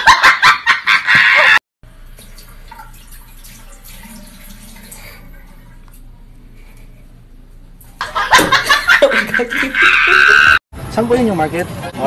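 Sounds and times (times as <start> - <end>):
bursts of laughter: 0.0 - 1.6, 8.0 - 10.6
water running from sink tap: 1.9 - 6.0.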